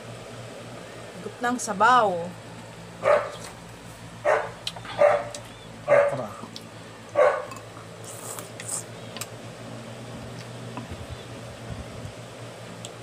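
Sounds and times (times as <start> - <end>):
dog barking: 3.0 - 3.5, 4.2 - 6.3, 7.1 - 7.5.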